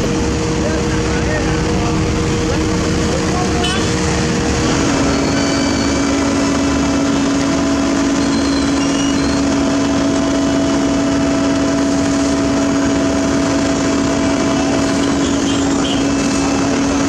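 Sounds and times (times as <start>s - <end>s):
asphalt paver machine drone: 0.0s - 17.0s.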